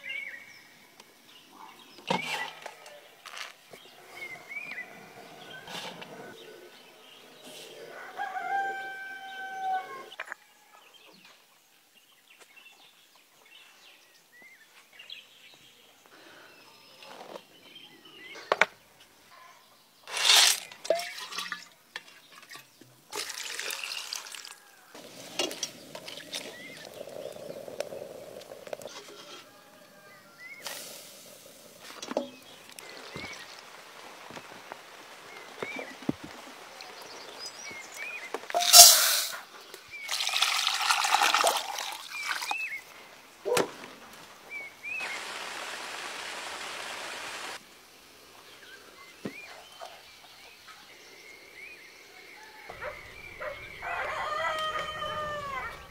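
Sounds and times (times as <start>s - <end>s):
liquid pouring and trickling: 20.8s - 21.7s, 22.4s - 27.9s, 40.0s - 42.6s.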